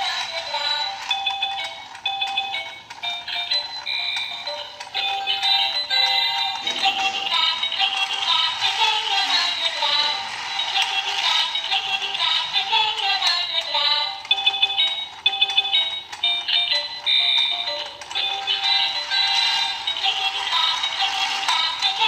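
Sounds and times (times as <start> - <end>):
tinny electronic children's tune: 0.0 - 22.0
bright beeping notes: 0.3 - 7.7.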